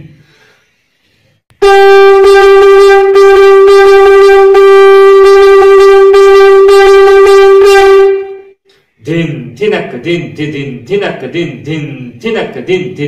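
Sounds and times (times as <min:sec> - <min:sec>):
conch shell blown: 0:01.6 - 0:08.6.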